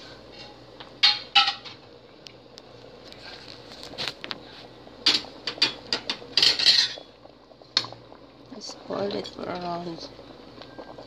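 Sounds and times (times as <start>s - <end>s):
utensil clattering in metal pot: 1.0s - 1.8s, 5.0s - 7.1s.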